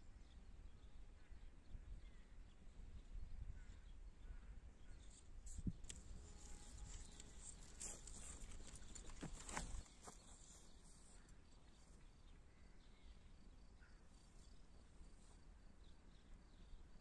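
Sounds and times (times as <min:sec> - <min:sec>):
faint low wind rumble: 0:00.0 - 0:09.9.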